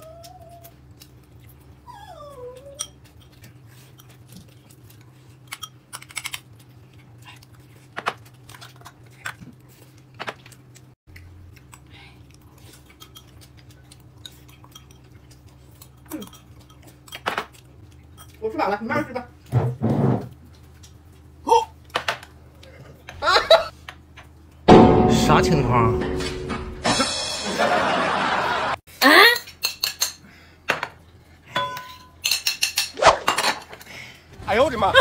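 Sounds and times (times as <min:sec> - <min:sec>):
dishes and chopsticks clinking: 0:14.2 - 0:15.3, 0:15.9 - 0:18.4, 0:31.5 - 0:33.8.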